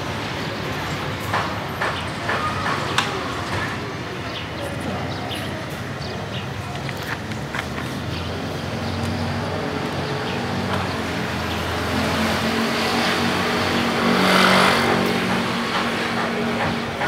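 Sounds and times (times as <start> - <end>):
vehicle engine passing: 8.3 - 16.3.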